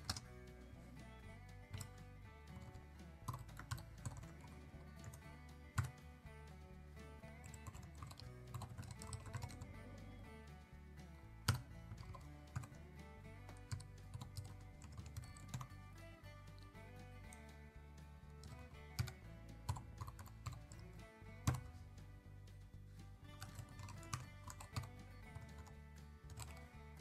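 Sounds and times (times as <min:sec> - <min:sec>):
keyboard typing: 0:00.0 - 0:00.3, 0:02.5 - 0:05.2, 0:05.8 - 0:06.0, 0:07.4 - 0:09.7, 0:11.4 - 0:12.8, 0:13.5 - 0:15.7, 0:18.4 - 0:21.7, 0:23.4 - 0:25.7, 0:26.3 - 0:26.7
quiet background music: 0:00.0 - 0:27.0.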